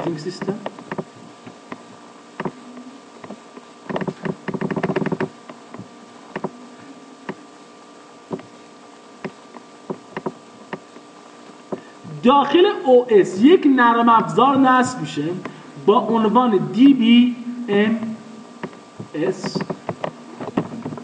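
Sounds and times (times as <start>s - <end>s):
faint hum: 0.0s - 21.0s
keyboard typing: 3.9s - 5.3s.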